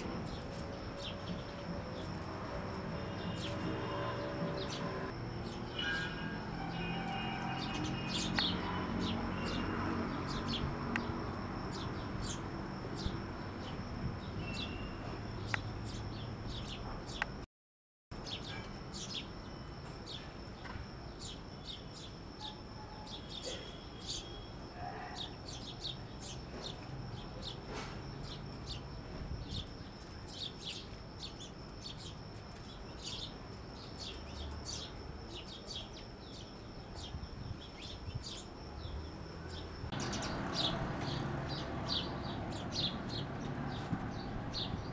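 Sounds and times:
small birds chirping: 0:00.0 - 0:06.2, 0:06.8 - 0:17.4, 0:18.2 - 0:44.9
high-pitched whine: 0:00.0 - 0:11.0.

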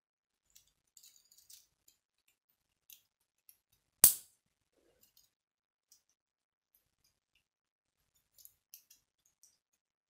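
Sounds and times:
plastic pieces rattling and ticking: 0:00.4 - 0:03.7.

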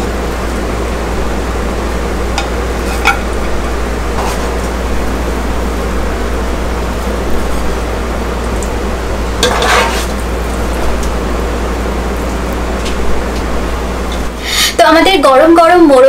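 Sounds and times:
steady rushing fan noise: 0:00.0 - 0:16.0.

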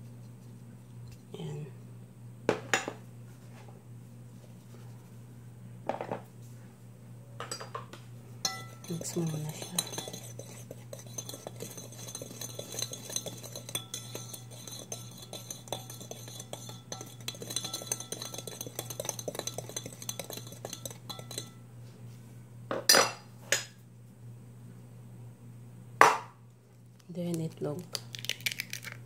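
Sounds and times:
utensil scraping plastic bowl: 0:08.7 - 0:21.5.

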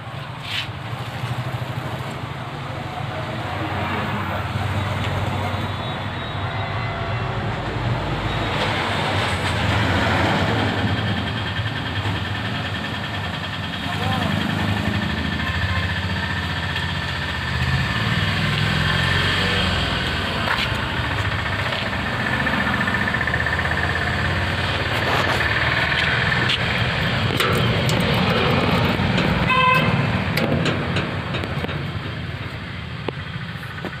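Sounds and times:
engine rumbling: 0:00.0 - 0:34.0
horn toot: 0:29.4 - 0:30.1.

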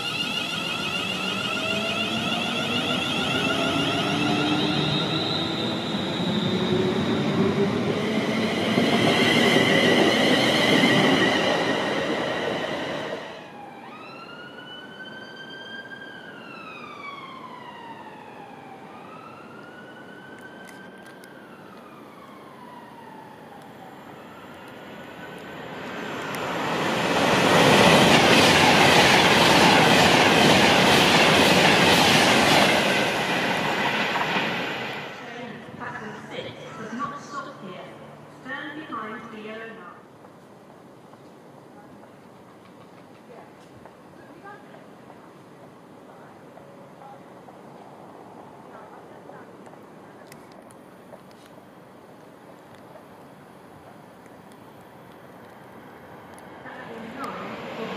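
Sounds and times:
electric train motor whine: 0:00.0 - 0:07.0
siren wailing: 0:00.0 - 0:07.2, 0:13.3 - 0:25.3
train passing at speed: 0:00.0 - 0:57.9.

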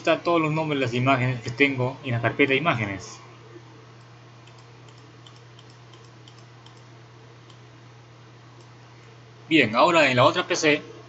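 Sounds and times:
steady low hum: 0:00.0 - 0:11.0
computer mouse clicks: 0:04.0 - 0:07.6.

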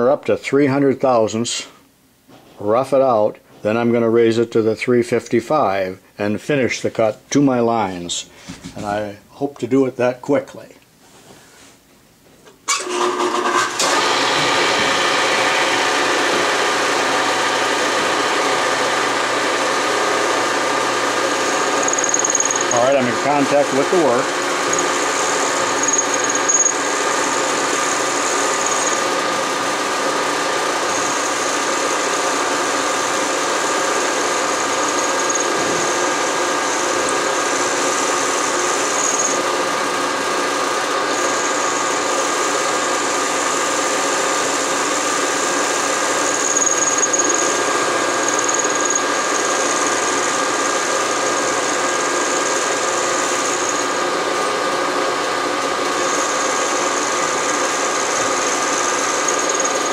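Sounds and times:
milling machine hum: 0:13.8 - 0:59.9
high cutting squeal: 0:21.4 - 0:29.2, 0:34.0 - 0:39.5, 0:46.2 - 0:47.6, 0:48.2 - 0:53.9, 0:56.0 - 0:59.9.

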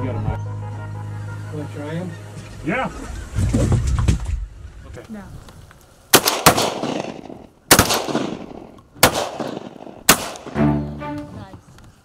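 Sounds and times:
background music with low strings: 0:00.0 - 0:03.2, 0:10.4 - 0:11.7
shotgun shots echoing: 0:06.1 - 0:10.6.

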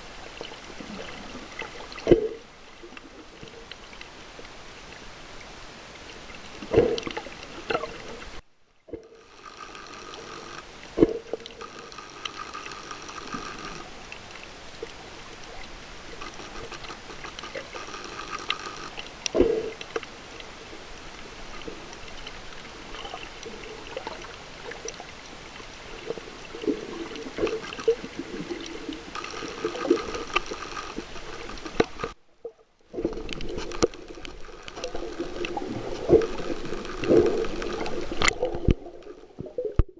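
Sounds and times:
faint pitched whine: 0:00.0 - 0:39.9
underwater water wash: 0:00.0 - 0:39.9.

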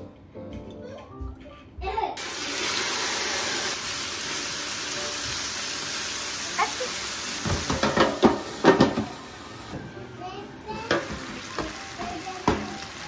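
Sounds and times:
chicken sizzling on a griddle: 0:02.2 - 0:13.0
metal tongs clacking on griddle: 0:07.7 - 0:09.0.

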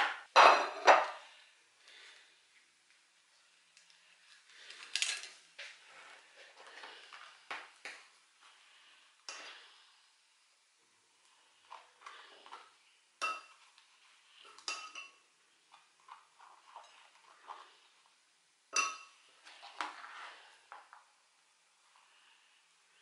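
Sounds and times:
spoon clinking against ceramic: 0:13.2 - 0:13.6, 0:14.5 - 0:15.2, 0:18.7 - 0:19.2.

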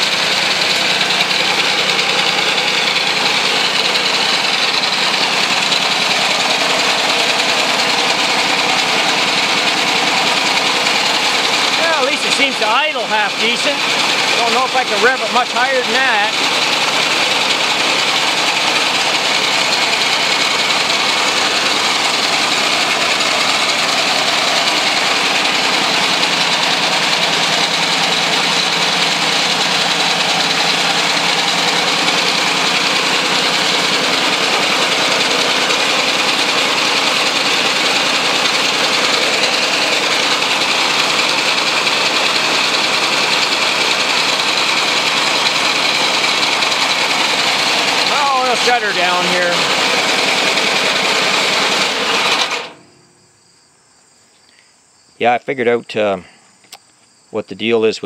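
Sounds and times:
small engine running loudly: 0:00.0 - 0:53.0.

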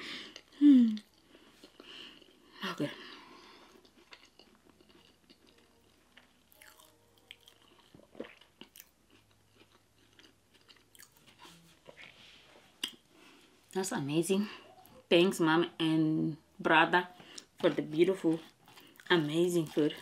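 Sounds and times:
close-up chewing: 0:03.3 - 0:12.1, 0:17.1 - 0:20.0.

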